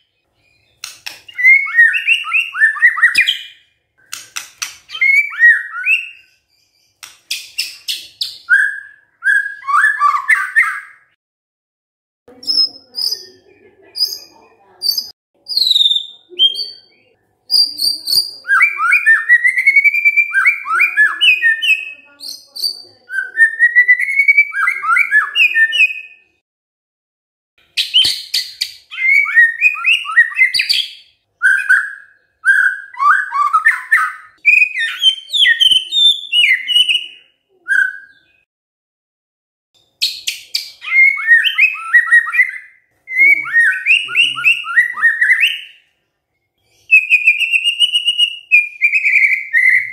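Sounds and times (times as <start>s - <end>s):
bird singing whistled phrases: 0.0s - 4.2s, 4.9s - 11.2s, 14.9s - 26.3s, 27.8s - 38.5s, 40.0s - 45.9s, 46.8s - 49.9s.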